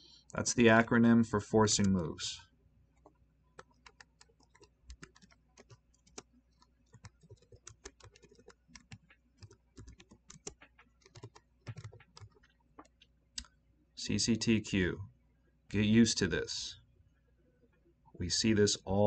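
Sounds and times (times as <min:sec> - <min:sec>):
faint keyboard typing: 0:01.7 - 0:02.0, 0:03.0 - 0:13.6.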